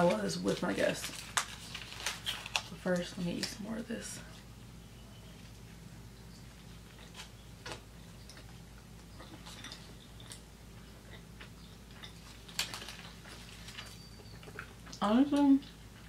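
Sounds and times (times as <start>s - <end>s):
faint steady hum: 0.0s - 16.0s
chewing with wet mouth clicks: 6.3s - 15.0s.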